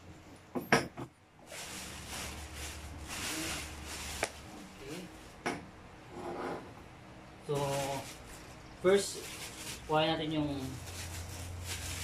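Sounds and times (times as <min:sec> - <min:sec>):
plastic wrapping crinkling: 0:01.4 - 0:05.4, 0:07.5 - 0:12.0.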